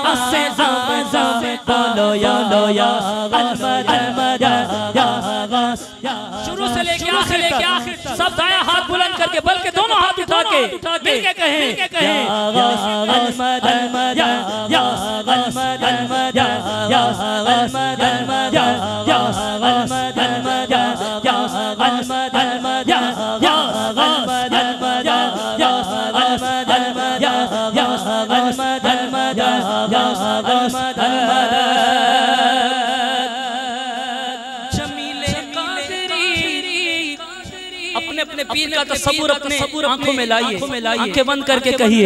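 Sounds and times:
people singing along: 0.0s - 8.3s, 11.1s - 38.6s
man singing devotional chant: 0.0s - 42.0s.

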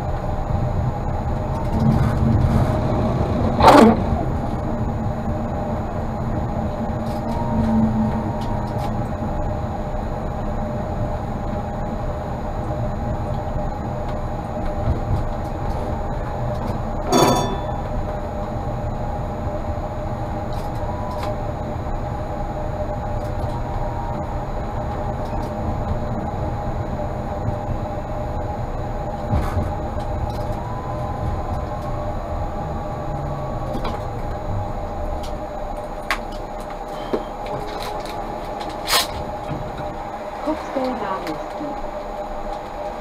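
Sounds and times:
electrical whine: 0.0s - 43.0s
wheels rumbling on rail: 0.0s - 43.0s.

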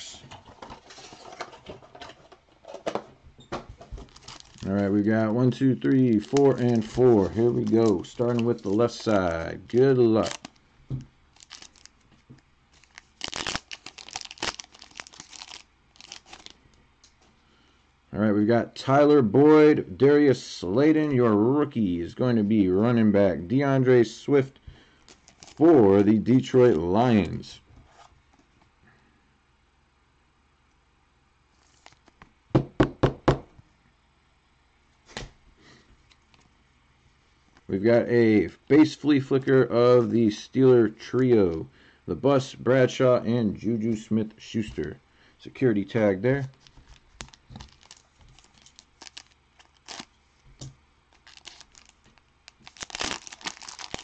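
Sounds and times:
foil wrapper tearing and crinkling: 4.0s - 10.6s, 11.3s - 12.0s, 12.7s - 16.6s, 25.1s - 25.7s, 31.6s - 32.2s, 46.4s - 50.2s, 51.1s - 54.0s.

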